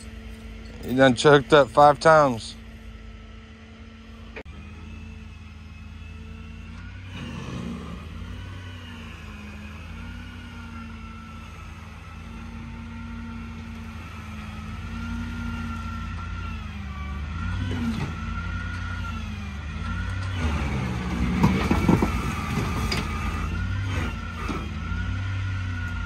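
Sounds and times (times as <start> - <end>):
heavy diesel machinery running: 0.0 - 26.0
metal clanks and crunches: 19.8 - 24.7.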